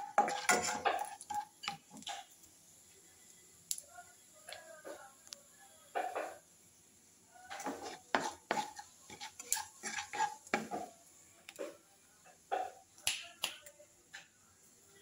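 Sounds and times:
wooden spatula stirring: 0:00.0 - 0:02.3, 0:07.4 - 0:11.0
seeds spluttering in hot oil: 0:00.0 - 0:03.9, 0:06.3 - 0:11.8.

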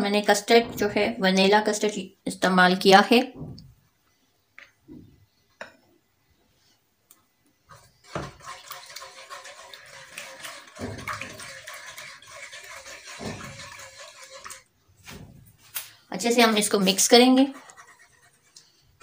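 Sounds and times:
sloshing and scraping in pan: 0:07.7 - 0:15.7, 0:16.8 - 0:19.0.

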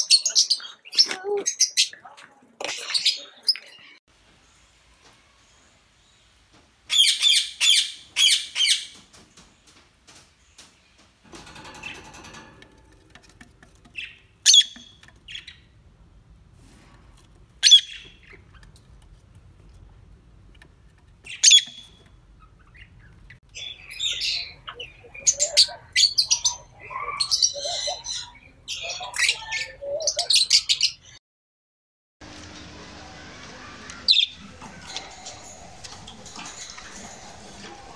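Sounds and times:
lovebirds chirping and chattering: 0:00.0 - 0:15.9, 0:17.4 - 0:31.2, 0:33.6 - 0:37.9.

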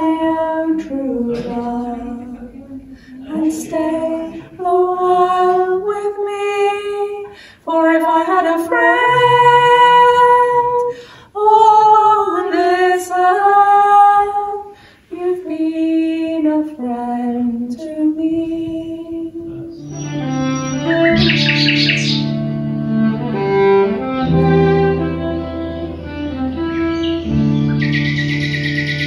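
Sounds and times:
woman singing unaccompanied: 0:00.0 - 0:19.6.

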